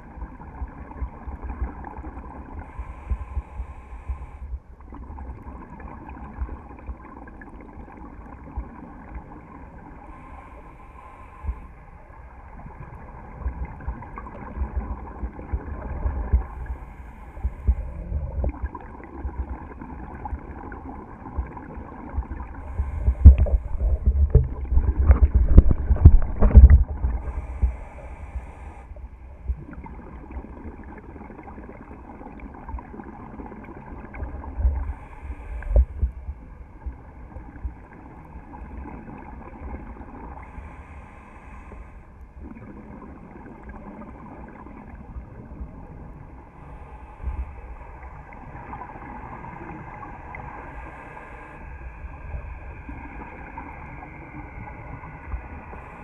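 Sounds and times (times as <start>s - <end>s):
muffled underwater rumble: 0.0s - 56.0s
gurgling bubbles: 4.9s - 9.8s, 12.6s - 40.5s, 42.4s - 46.2s.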